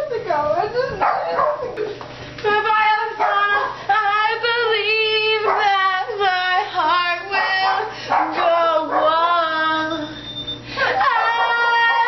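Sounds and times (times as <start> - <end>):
girl singing: 2.4 - 10.2.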